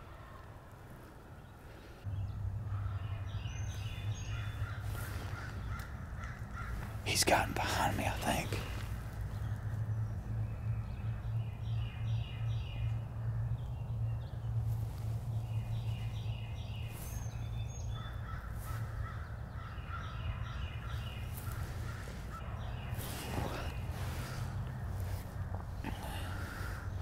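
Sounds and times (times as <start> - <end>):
steady low hum: 0.0 - 27.0
crows cawing: 2.6 - 7.0, 17.8 - 22.4, 23.5 - 27.0.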